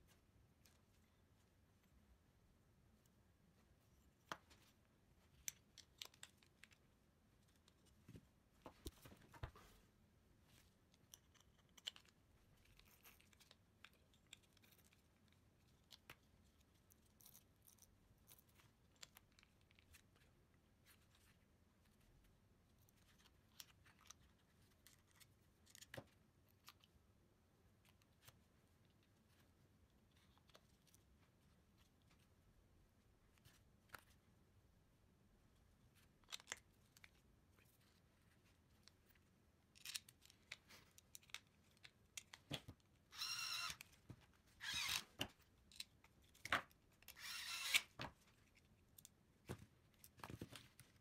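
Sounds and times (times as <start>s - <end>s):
small plastic and metal parts clicking: 5.3s - 7.9s, 10.9s - 20.3s.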